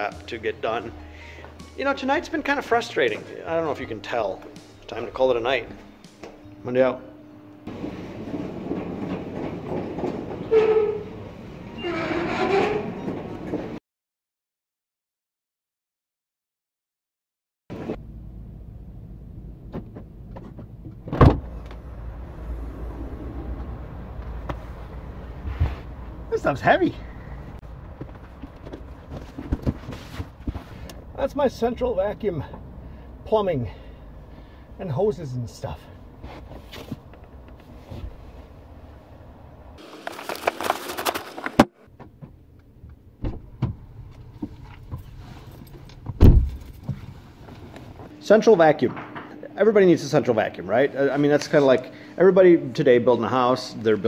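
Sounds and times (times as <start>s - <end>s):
steady low rumble: 18.0s - 34.8s
car tailgate clunk: 21.0s - 21.6s, 46.1s - 46.7s
dull thump: 46.1s - 47.0s.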